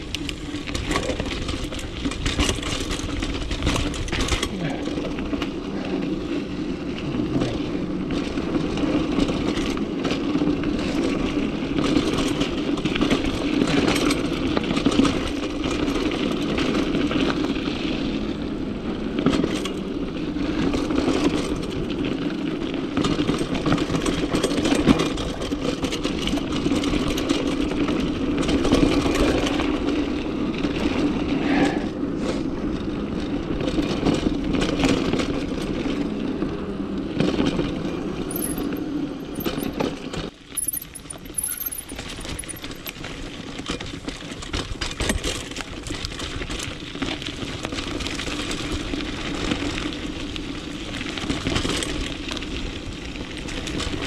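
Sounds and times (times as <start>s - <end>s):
bike chain rattling and clicking: 0.0s - 5.6s, 8.2s - 18.1s, 19.3s - 31.1s, 37.3s - 54.0s
bike tyres crunching over stones: 37.7s - 54.0s.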